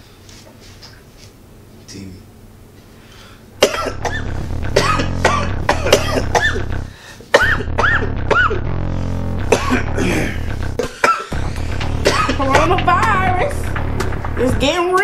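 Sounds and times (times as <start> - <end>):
rapid coughs: 3.6 - 4.2, 4.8 - 6.6, 7.3 - 8.6, 9.5 - 12.4
music with steady bass: 3.6 - 10.8, 11.4 - 15.0.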